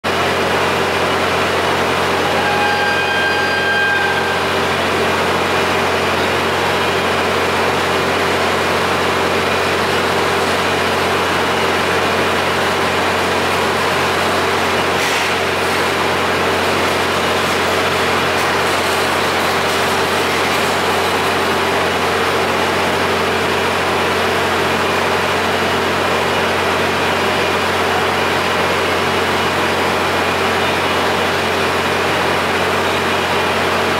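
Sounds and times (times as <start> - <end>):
diesel railcar engine idling: 0.1 - 33.9
short electronic beep: 2.2 - 4.6.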